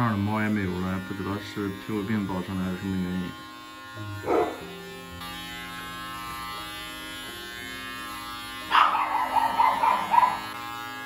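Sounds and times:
electric pet clippers buzzing: 0:00.0 - 0:11.0.

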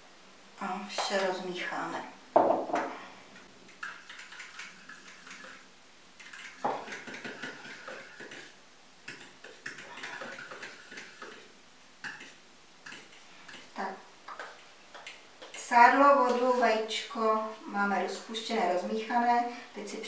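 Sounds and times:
utensil clicking against bowl: 0:09.1 - 0:13.7.

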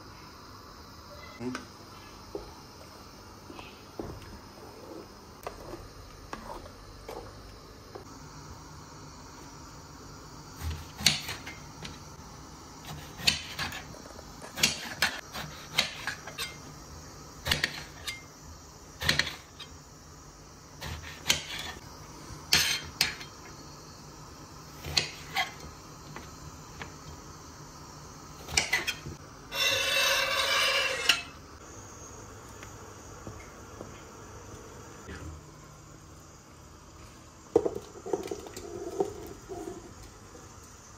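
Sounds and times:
knife scraping glass board: 0:28.6 - 0:31.3.

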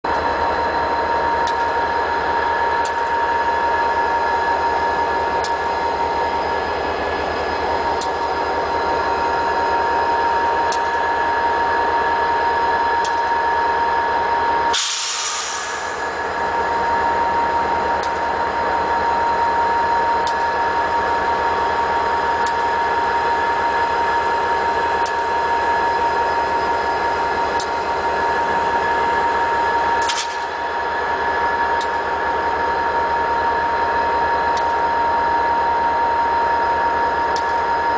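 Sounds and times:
diesel locomotive engine rumble: 0:00.0 - 0:37.9
high-pitched whine: 0:00.1 - 0:37.9
hiss: 0:14.7 - 0:16.0.

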